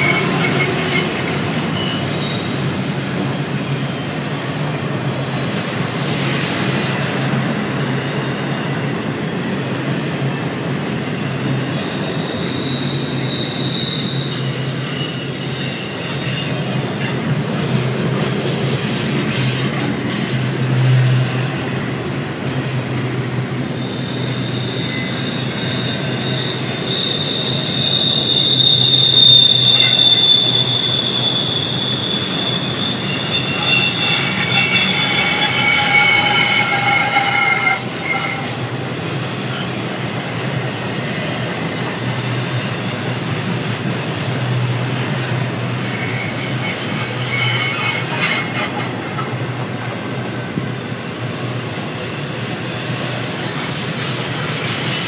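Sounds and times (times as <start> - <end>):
high-pitched wheel squeals: 0.0 - 6.3, 11.7 - 21.2, 23.8 - 41.2, 43.8 - 50.1, 52.7 - 55.0
railroad cars rumbling: 0.0 - 55.0.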